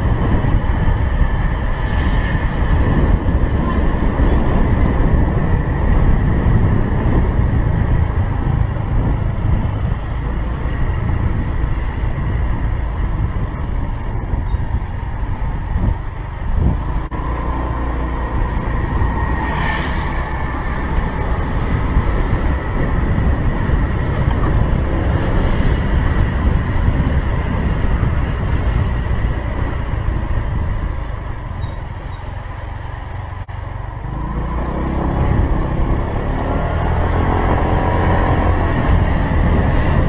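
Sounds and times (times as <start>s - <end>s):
wind noise on microphone: 0.0s - 40.0s.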